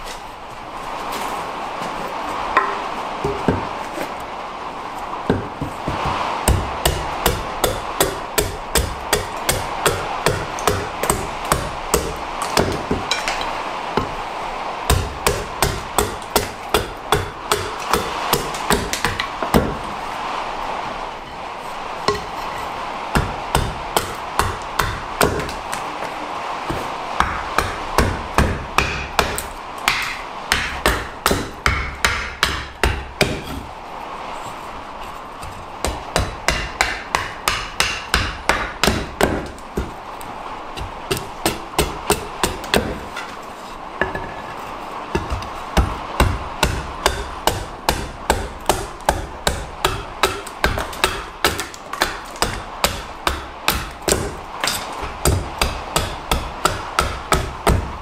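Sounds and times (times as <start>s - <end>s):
axe chopping wood: 5.3s - 13.3s, 14.9s - 19.9s, 23.2s - 25.6s, 26.7s - 33.6s, 35.4s - 40.0s, 40.8s - 43.4s, 45.2s - 57.9s.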